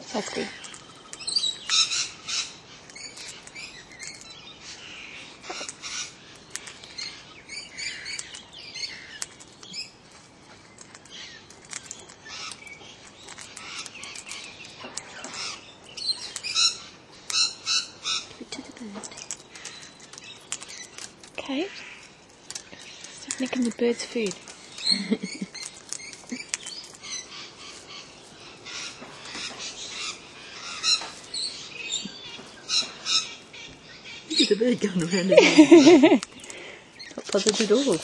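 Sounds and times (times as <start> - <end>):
parrot beak clicks and crunches: 0.3 - 30.2, 35.7 - 38.0.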